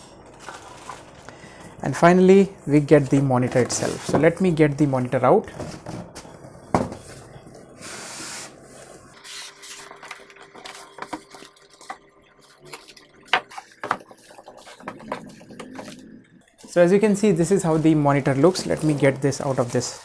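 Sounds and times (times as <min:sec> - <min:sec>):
plastic wrapping rustling: 0:07.0 - 0:20.0.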